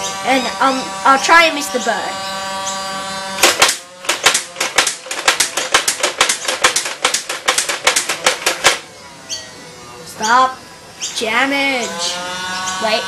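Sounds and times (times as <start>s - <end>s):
toy machine gun clicking: 3.4s - 8.9s.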